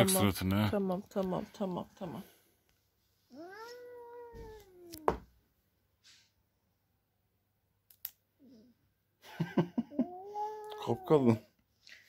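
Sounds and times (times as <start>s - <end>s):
cat meowing: 3.3s - 5.2s.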